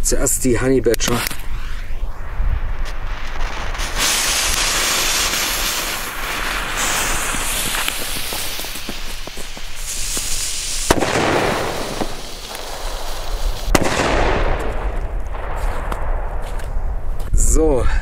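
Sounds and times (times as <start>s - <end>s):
lit fuses hissing: 0.5s - 13.7s
firecracker bangs with echo: 3.3s - 16.6s.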